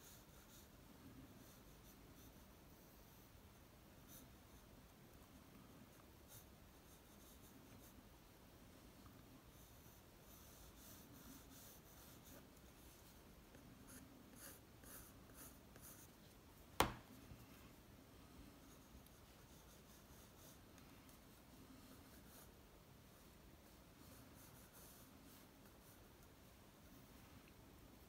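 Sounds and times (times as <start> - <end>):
pencil scratching on paper: 0.0 - 4.7, 5.8 - 8.0, 9.4 - 16.3, 18.4 - 26.3.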